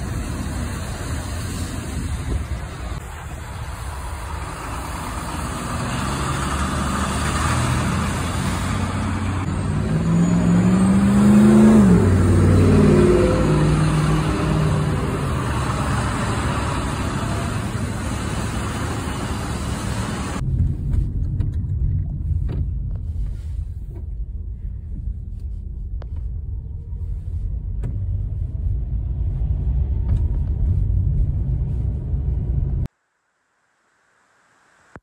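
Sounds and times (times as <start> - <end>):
diesel truck passing: 0.0 - 20.4
car cabin engine and road rumble: 0.0 - 32.9
traffic noise: 0.0 - 33.0.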